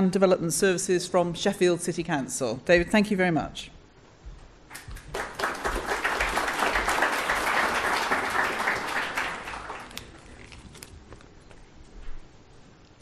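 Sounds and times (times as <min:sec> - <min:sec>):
audience applauding: 0:04.7 - 0:10.3.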